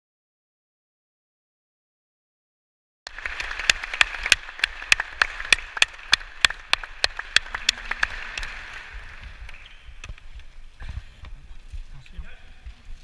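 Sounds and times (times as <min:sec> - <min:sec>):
hands clapping: 0:03.1 - 0:10.3.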